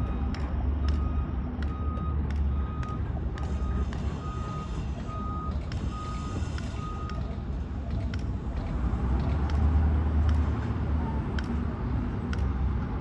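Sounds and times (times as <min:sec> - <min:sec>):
reversing alarm beeping: 0:00.0 - 0:07.2
engine low rumble: 0:00.0 - 0:13.0.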